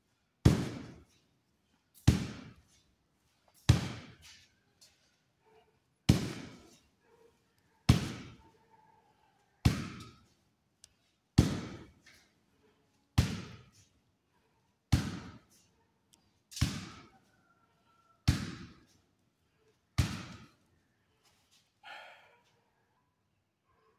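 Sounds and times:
kicks thudding into sandbag: 0:03.7 - 0:04.2, 0:09.7 - 0:10.1.

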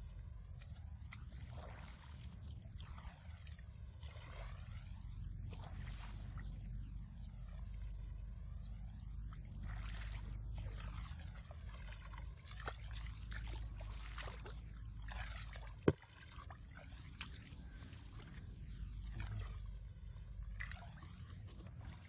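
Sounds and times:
steady low rumble: 0:00.0 - 0:12.5, 0:17.6 - 0:22.0
water sloshing and trickling: 0:00.0 - 0:22.0.

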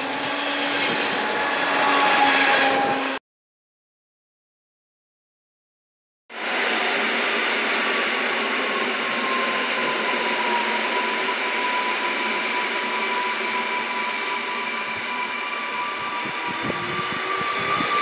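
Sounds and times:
train running hiss: 0:06.4 - 0:18.0.

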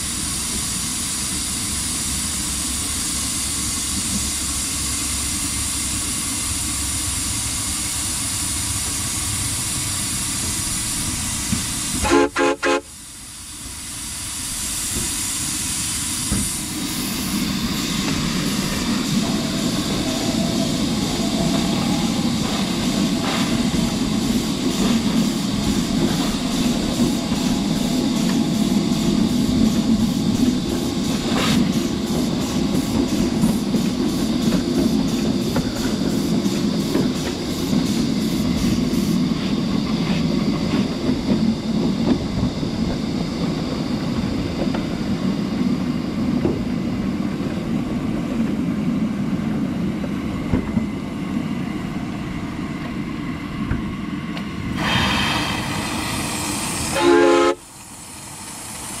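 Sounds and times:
steam hiss: 0:00.0 - 0:46.0, 0:50.2 - 0:59.0
small wheels rumbling on rail: 0:00.0 - 0:59.0.

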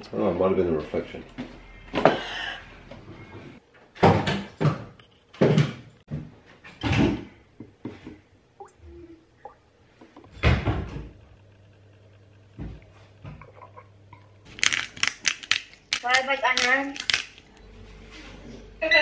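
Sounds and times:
loud clunks and knocks in kitchen: 0:03.9 - 0:08.1, 0:10.4 - 0:11.1.

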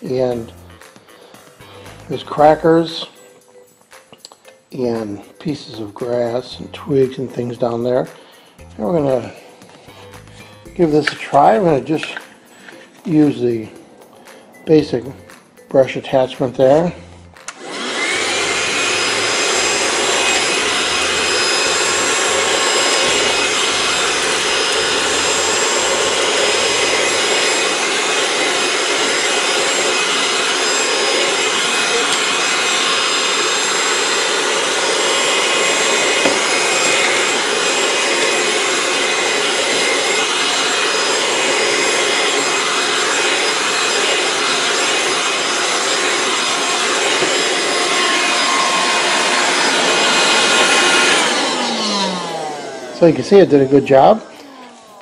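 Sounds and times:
handheld vacuum running: 0:00.0 - 0:03.2, 0:08.8 - 0:15.1, 0:16.5 - 0:55.0
vacuum motor winding down: 0:16.8 - 0:55.0.

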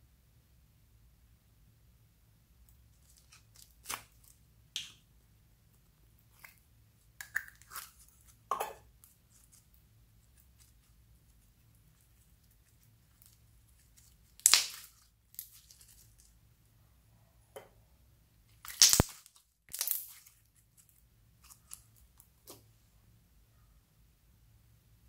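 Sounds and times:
slime crackling and popping: 0:03.0 - 0:05.0, 0:09.3 - 0:16.4, 0:18.5 - 0:22.6.

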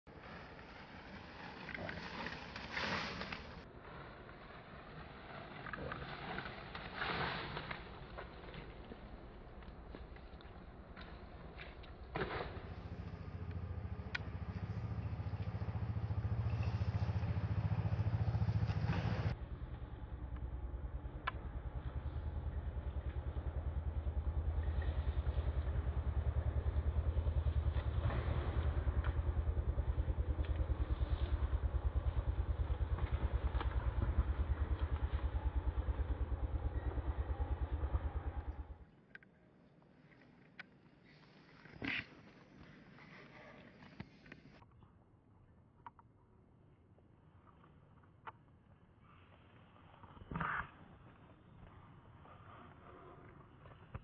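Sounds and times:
low engine rumble: 0:07.8 - 0:38.9.

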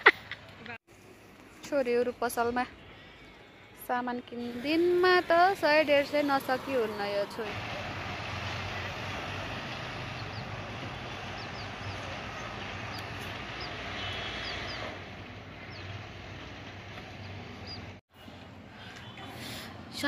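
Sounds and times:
street traffic hum: 0:00.0 - 0:20.0
motorbikes passing: 0:04.4 - 0:20.0.

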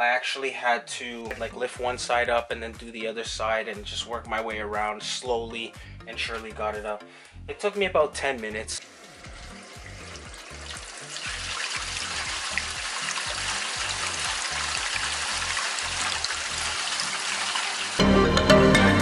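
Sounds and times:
water rushing down drain pipe: 0:08.8 - 0:18.0.

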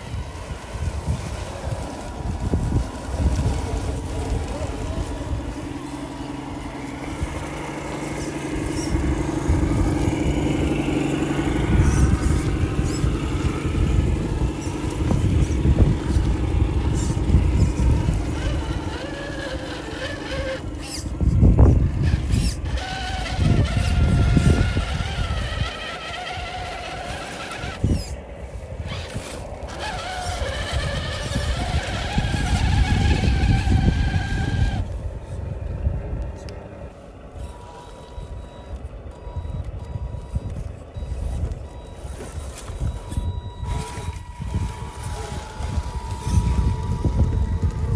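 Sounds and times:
electric toy car motors whining: 0:00.0 - 0:47.9
low uneven rumbling: 0:00.0 - 0:47.9.

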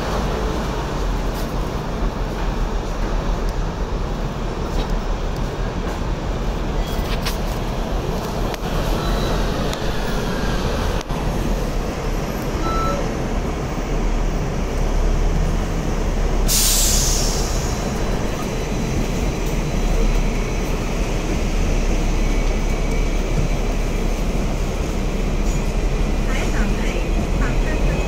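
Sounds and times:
tram moving along tracks: 0:00.0 - 0:28.0
tram rumble: 0:00.0 - 0:28.0
compressed air hiss: 0:16.5 - 0:17.9.

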